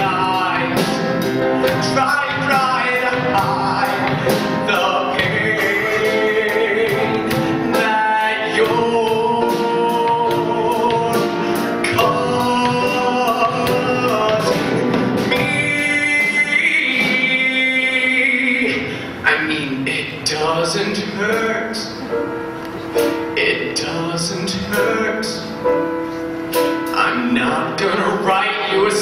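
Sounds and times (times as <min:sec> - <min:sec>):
instrumental accompaniment: 0:00.0 - 0:20.2, 0:20.8 - 0:29.0
man singing long notes: 0:00.0 - 0:22.1.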